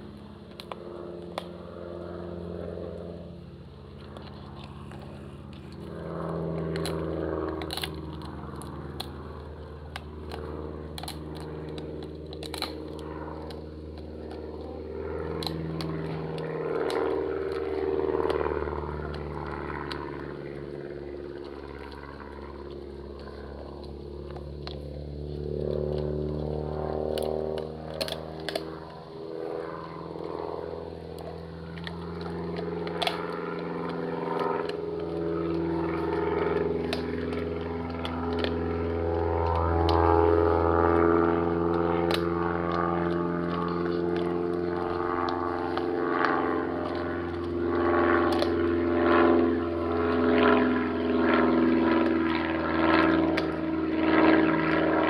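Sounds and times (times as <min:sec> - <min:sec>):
low droning hum: 0:00.0 - 0:55.0
dog gnawing on bone: 0:03.8 - 0:55.0
bone cracking: 0:06.6 - 0:20.1, 0:27.1 - 0:29.0, 0:31.1 - 0:40.2.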